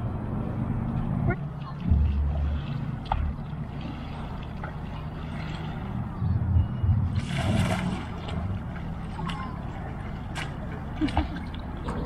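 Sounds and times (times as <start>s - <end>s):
steady low rumble: 0.0s - 12.0s
oar splashing into water: 7.2s - 12.0s.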